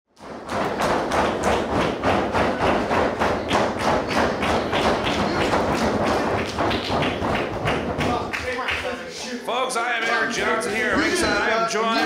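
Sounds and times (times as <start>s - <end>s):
steady sharp thumps: 0.2s - 8.6s.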